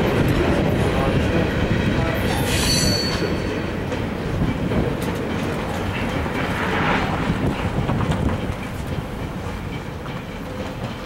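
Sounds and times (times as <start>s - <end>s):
train wheels rumbling on rail: 0.0s - 11.0s
metallic wheel squeal: 2.3s - 3.7s.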